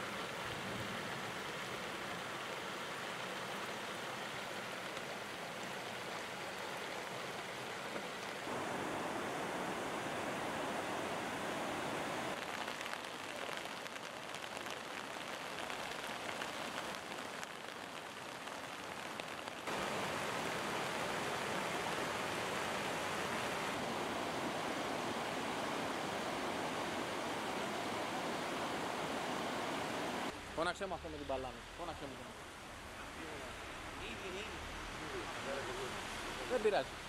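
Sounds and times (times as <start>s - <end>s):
rain: 0.0s - 37.0s
rushing floodwater: 0.0s - 37.0s
heavy surf: 8.4s - 12.4s, 19.7s - 30.9s.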